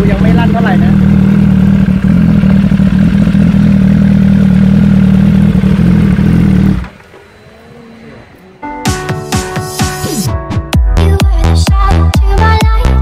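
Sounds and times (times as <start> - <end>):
motorcycle idling: 0.0 - 9.3.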